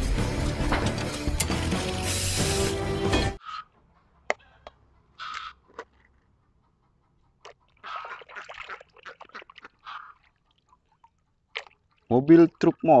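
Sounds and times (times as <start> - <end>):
water sloshing in a tub: 7.5 - 13.0.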